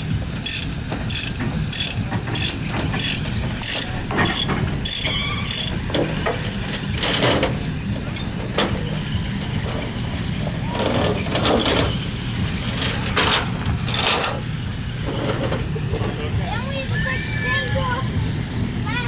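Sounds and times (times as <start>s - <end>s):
low engine hum: 0.0s - 19.0s
ratchet tie-down clicking: 0.4s - 7.3s.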